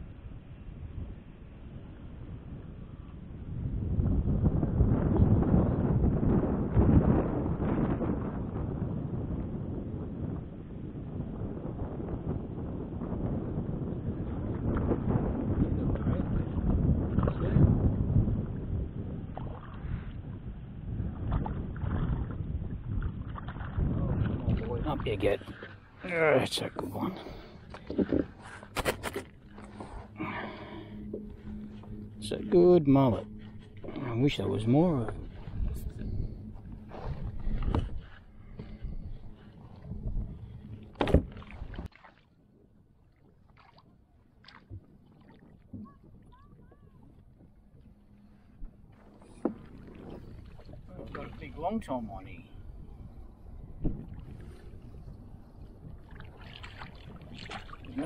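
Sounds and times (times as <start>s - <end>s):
wind buffeting microphone: 0.0s - 41.9s, 43.2s - 58.0s
water lapping against kayak hull: 14.0s - 58.0s.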